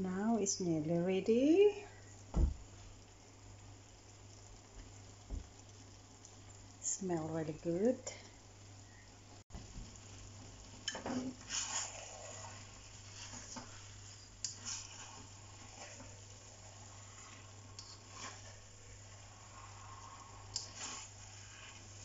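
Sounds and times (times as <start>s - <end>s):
faint sizzle: 0.0s - 22.0s
spatula scraping a wok: 10.9s - 22.0s.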